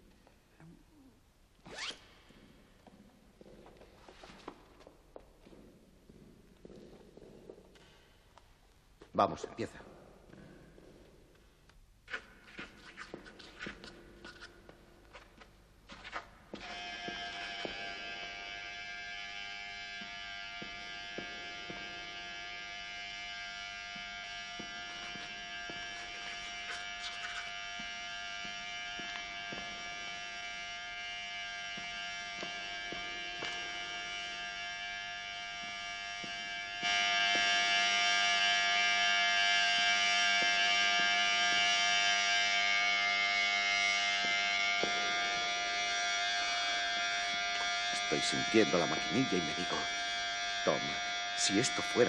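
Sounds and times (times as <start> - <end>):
electric hair clippers buzzing: 16.5 - 52.0.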